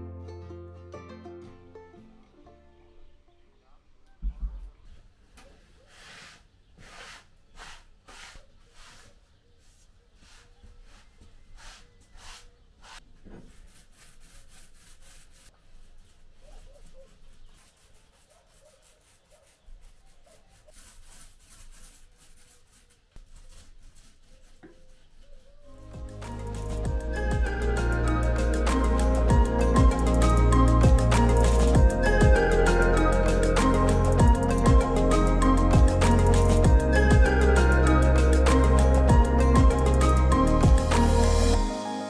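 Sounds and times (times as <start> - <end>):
paint roller rubbing on wall: 5.5 - 26.8.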